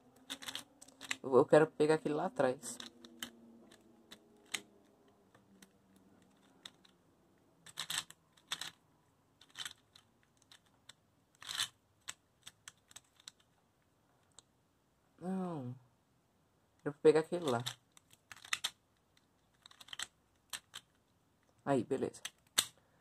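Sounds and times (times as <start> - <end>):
puzzle cube clicking: 0.1 - 1.2, 2.6 - 7.0, 7.6 - 8.8, 9.4 - 13.6, 17.4 - 21.2, 22.2 - 22.8.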